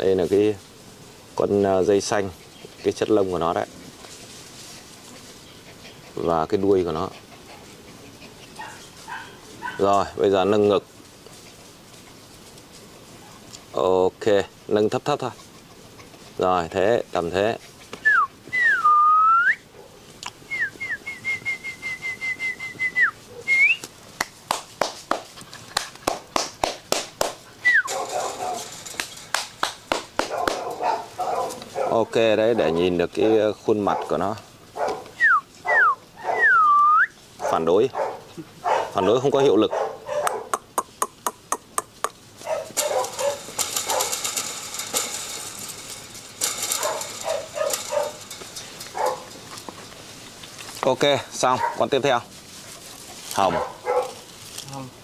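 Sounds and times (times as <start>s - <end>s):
puppies yapping: 4.7s - 10.1s, 27.5s - 32.1s, 34.8s - 36.7s, 37.4s - 50.6s, 52.9s - 54.3s
person whistling: 18.1s - 19.6s, 20.5s - 23.8s, 27.6s - 27.9s.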